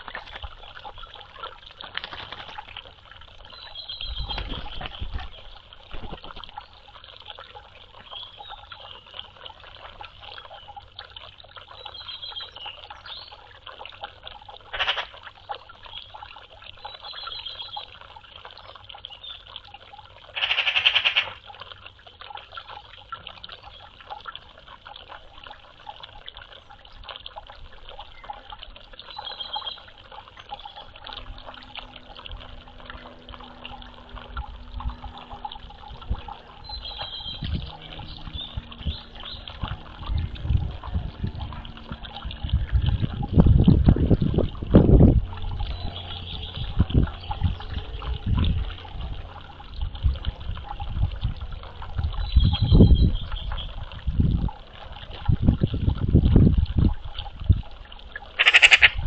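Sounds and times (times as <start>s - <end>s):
water trickling and splashing: 0.0s - 59.0s
loud rattling bird call: 14.7s - 15.1s, 20.4s - 21.4s, 58.4s - 59.0s
magpies calling: 14.8s - 15.1s, 20.4s - 21.4s, 58.4s - 59.0s.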